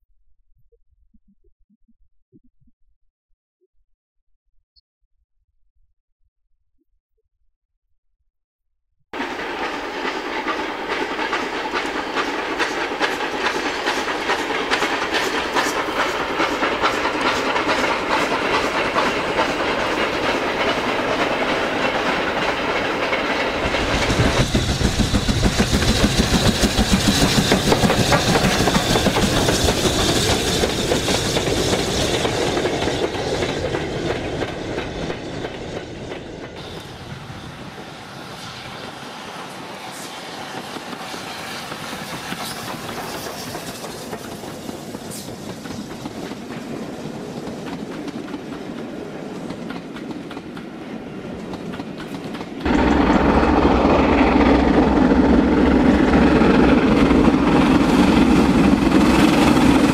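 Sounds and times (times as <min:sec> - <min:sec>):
model train wheels clicking: 0:09.2 - 0:35.8, 0:40.4 - 0:46.7
train rumble: 0:09.2 - 0:59.9.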